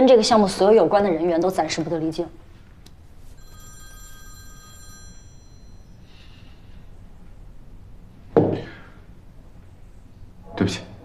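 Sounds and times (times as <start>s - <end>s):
phone bell-like chime: 3.4s - 6.3s.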